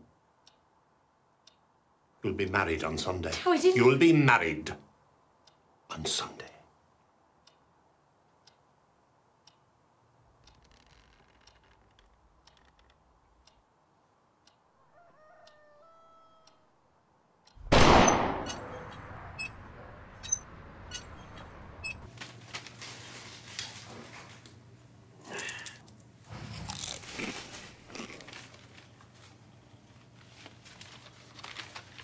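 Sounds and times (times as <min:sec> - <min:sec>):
rooster crowing: 0:14.7 - 0:16.8
loud bang: 0:17.6 - 0:19.5.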